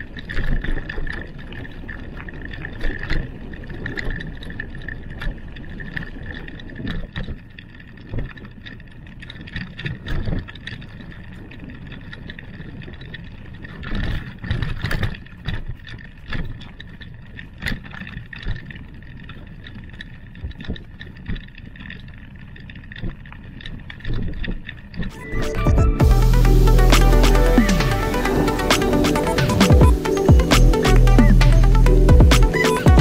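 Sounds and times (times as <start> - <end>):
bike knocking and rattling: 0.0 - 25.0
bicycle tyres rumbling on gravel: 0.0 - 25.1.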